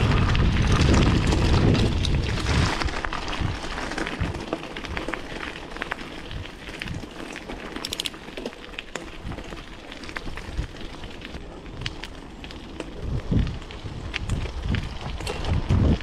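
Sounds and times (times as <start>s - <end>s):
wind buffeting microphone: 0.0s - 7.6s, 9.0s - 16.0s
bicycle tyres crunching on gravel: 0.0s - 16.0s
sharp clicks and rattles: 6.7s - 9.5s.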